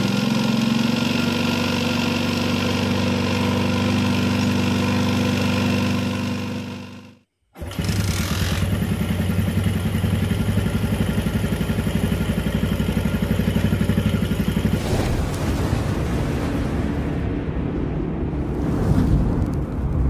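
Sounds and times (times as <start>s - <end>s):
motorcycle engine idling: 6.0s - 14.8s
rushing sound effect: 14.6s - 20.0s.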